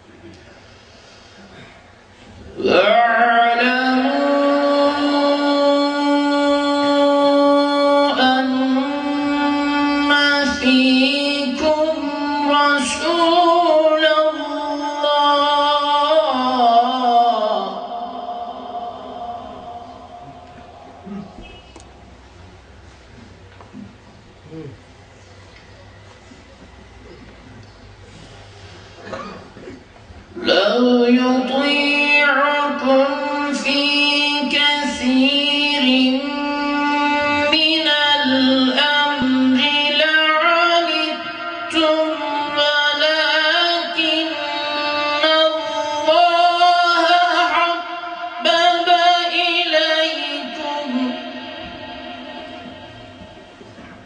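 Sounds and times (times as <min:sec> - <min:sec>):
man reciting melodically: 0:30.3 - 0:54.0.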